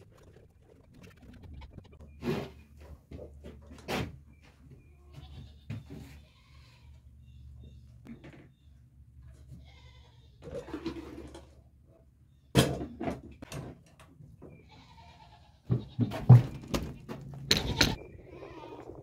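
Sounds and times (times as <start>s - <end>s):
goats bleating: 5.0s - 7.0s, 9.6s - 10.4s, 14.6s - 16.1s, 17.5s - 19.0s.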